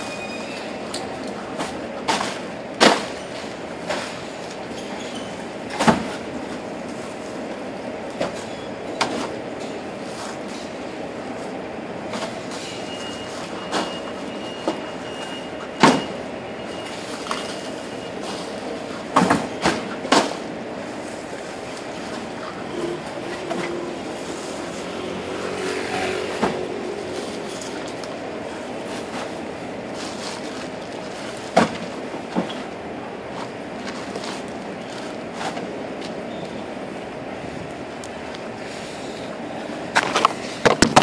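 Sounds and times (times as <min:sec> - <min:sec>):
steady background noise: 0:00.0 - 0:41.0.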